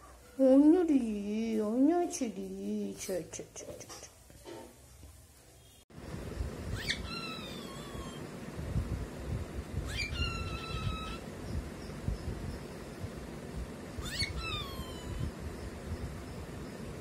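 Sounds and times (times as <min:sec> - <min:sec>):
steady low rumble: 0:06.0 - 0:17.0
cockatiel whistling calls: 0:06.7 - 0:08.2, 0:09.8 - 0:11.2, 0:14.0 - 0:15.3.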